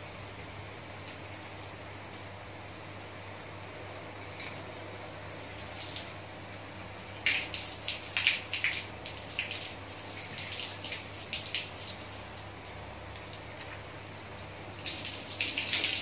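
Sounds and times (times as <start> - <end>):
steady low hum: 0.0 - 16.0
water splashing and dripping: 1.0 - 3.7, 4.4 - 16.0.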